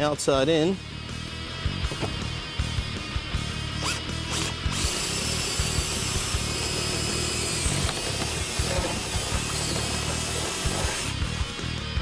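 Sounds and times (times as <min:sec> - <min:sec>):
cordless drill whining: 0:03.8 - 0:11.3.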